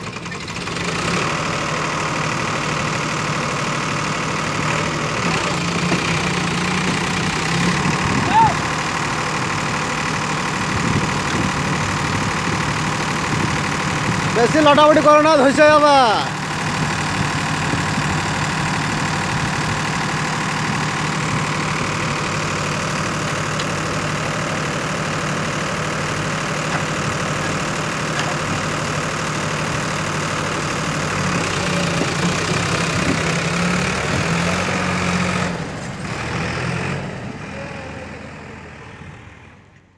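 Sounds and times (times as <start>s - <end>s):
diesel engines running under load: 0.0s - 39.9s.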